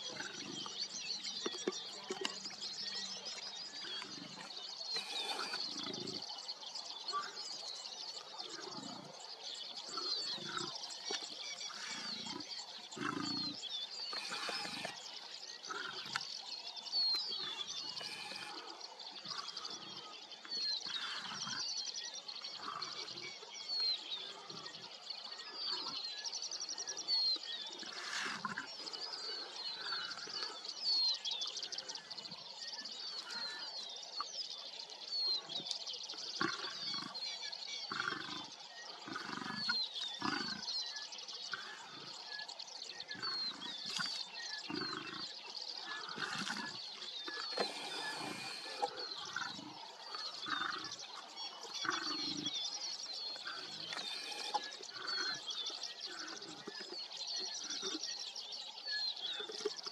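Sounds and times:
lions growling: 0.0 - 6.4, 8.3 - 16.4, 17.0 - 20.2, 27.6 - 30.6, 36.4 - 40.8, 43.1 - 58.0
birds chirping: 0.0 - 59.9.

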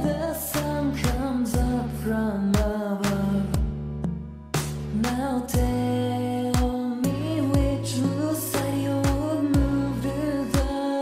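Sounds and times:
instrumental music with soft beat: 0.0 - 11.0.

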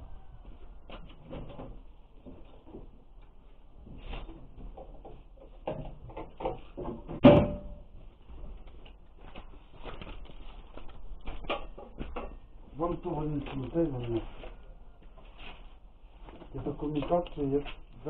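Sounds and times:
objects knocking and rattling: 4.0 - 8.6, 11.2 - 12.7
loud sharp metallic bang: 7.2 - 7.9.

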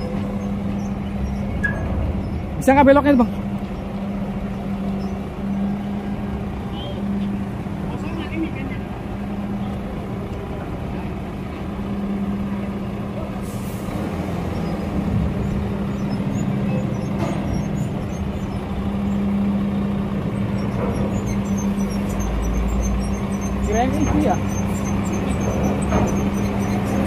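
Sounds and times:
diesel truck engine running: 0.0 - 27.0
air brakes hissing: 13.4 - 14.1.

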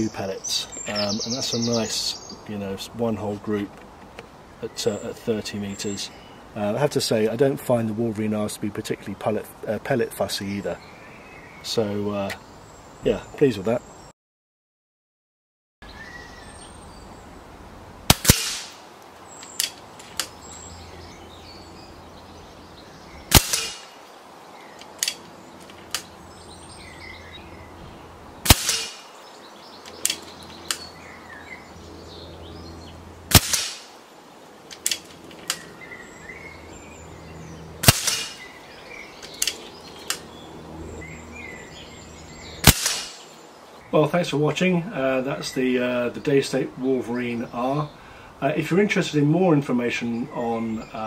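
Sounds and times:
faint birds chirping: 0.0 - 14.1, 15.8 - 18.1, 18.8 - 51.0
air rifle shot crack: 18.1 - 18.8, 23.3 - 24.0, 28.4 - 29.2, 33.3 - 34.0, 37.8 - 38.5, 42.6 - 43.3.

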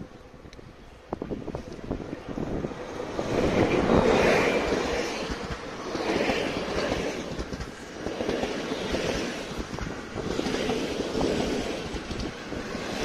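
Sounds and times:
train wheels clacking over rail joints: 3.5 - 13.0.

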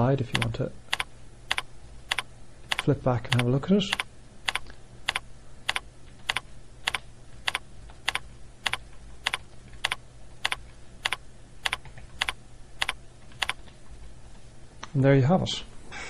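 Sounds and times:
keyboard keystrokes: 0.3 - 13.8.

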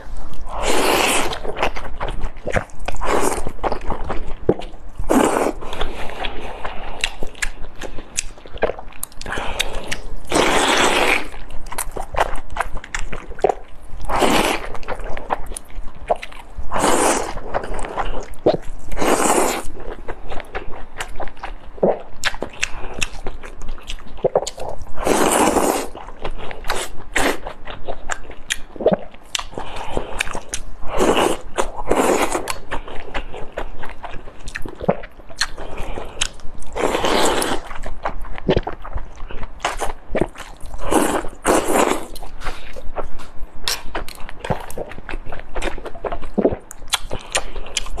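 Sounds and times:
smacking and chewing: 0.0 - 48.0
wet slurping: 24.2 - 26.0.

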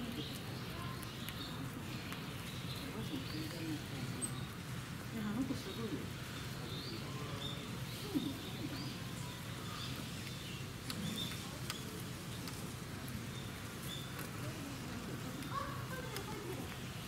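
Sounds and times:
faint distant voices: 0.0 - 17.0.

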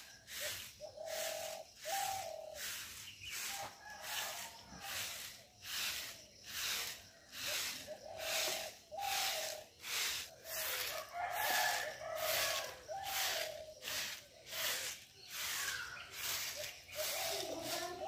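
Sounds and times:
broom sweeping dirt: 0.0 - 18.0
chicken calling: 7.4 - 18.0.

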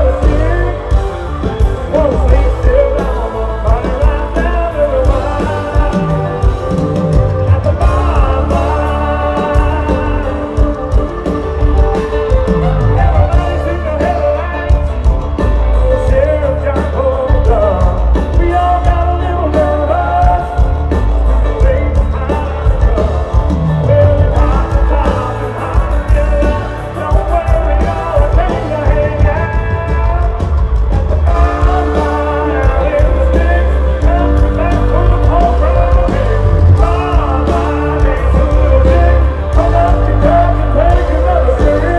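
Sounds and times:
country band playing: 0.0 - 41.9
drums: 0.0 - 41.9
heavy bass line: 0.0 - 41.9
man singing: 0.0 - 41.9.

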